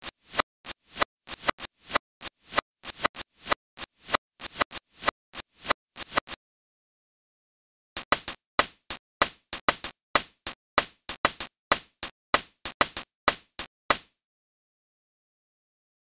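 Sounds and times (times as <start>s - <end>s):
electronic hi-hat pattern: 0.0s - 6.4s, 8.0s - 13.7s.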